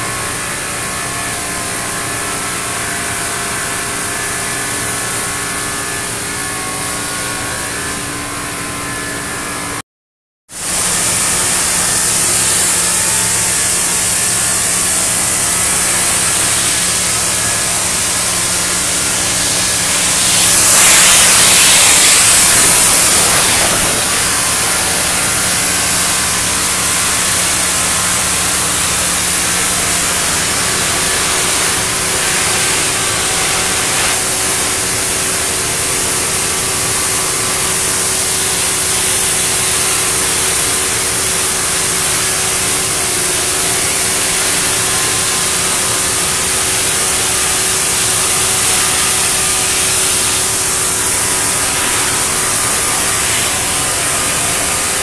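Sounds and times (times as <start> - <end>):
low machine hum: 10.8 - 34.8
cutting torches hissing: 14.2 - 34.9.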